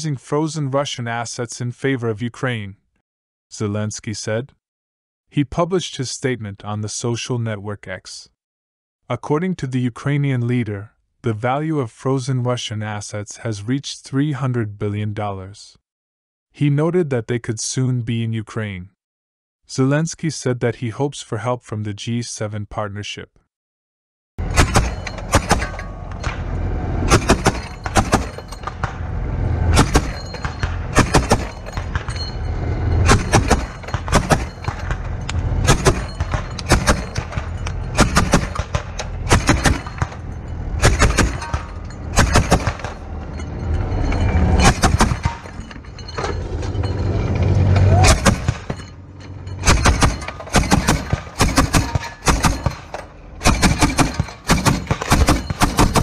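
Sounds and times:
gunfire: 24.4 - 26.4, 27.1 - 29.0, 29.6 - 32.2, 33.0 - 40.2, 40.8 - 43.0, 44.6 - 45.5, 48.0 - 48.8, 49.6 - 56.0
explosions: 24.4 - 43.4
low rumble: 24.4 - 53.6.

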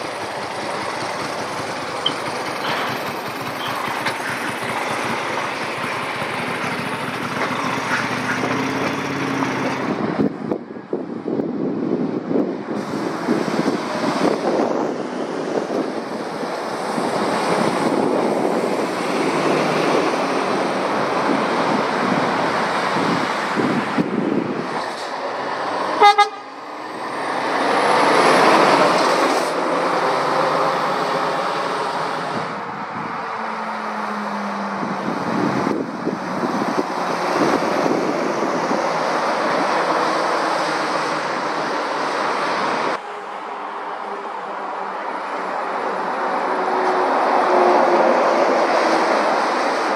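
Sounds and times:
lorries passing on road: 0.0 - 49.9
horn toot: 26.0 - 26.5.

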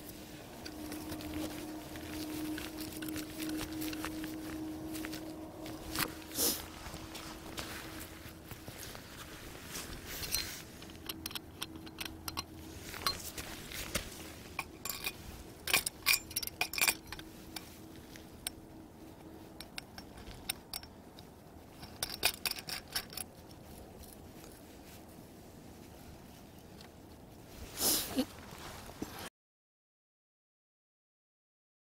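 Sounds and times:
metal clinks and rattles: 0.0 - 25.0.

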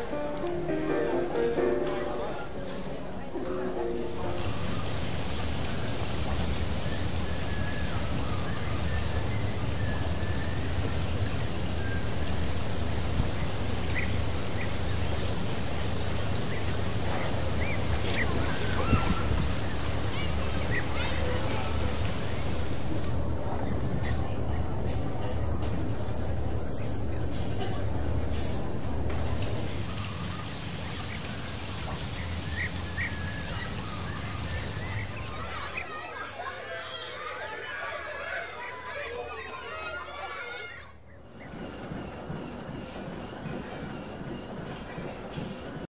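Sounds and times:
rain-like hiss: 0.0 - 35.8
rushing water: 3.7 - 35.9.

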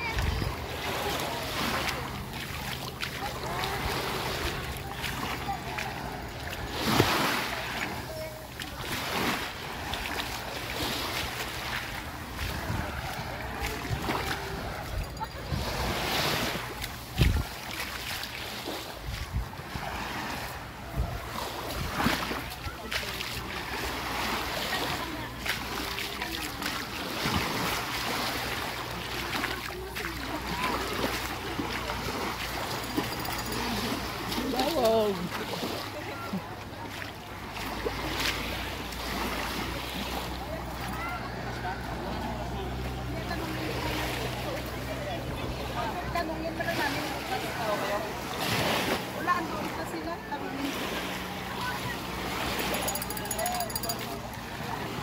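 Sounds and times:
wind rumbling on microphone: 0.0 - 1.1, 12.0 - 17.7, 18.8 - 22.7
faint voices: 0.0 - 55.0
surf washing onto a beach: 0.0 - 55.0
waves rushing: 0.0 - 55.0
wind: 0.0 - 55.0.

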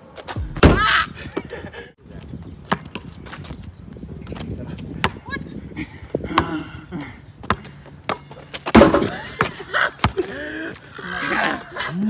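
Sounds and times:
basketball bouncing on asphalt: 2.4 - 5.4, 6.2 - 10.3.

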